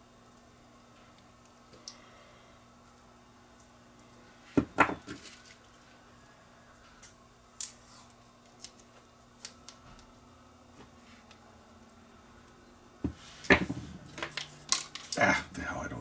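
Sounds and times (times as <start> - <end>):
sharp knocks on workbench: 4.6 - 5.1.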